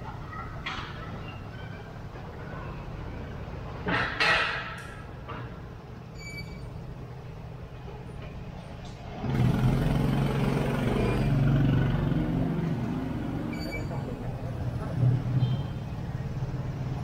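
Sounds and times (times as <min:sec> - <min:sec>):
motorbike engine rumble: 0:05.1 - 0:17.0
louder low engine: 0:09.1 - 0:15.6.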